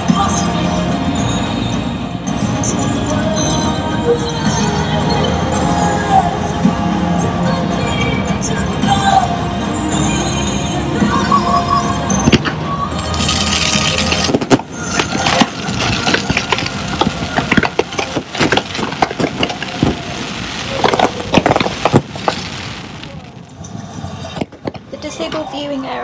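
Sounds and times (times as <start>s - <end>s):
fireworks bangs and pops: 12.2s - 25.0s
fireworks hissing: 12.2s - 25.0s.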